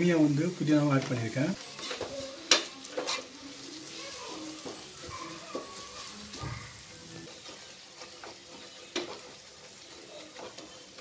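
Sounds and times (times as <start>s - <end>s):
food sizzling: 0.0s - 11.0s
wooden spatula scraping pot: 1.0s - 3.4s, 4.6s - 11.0s
spatula clicking on pot: 7.3s - 11.0s.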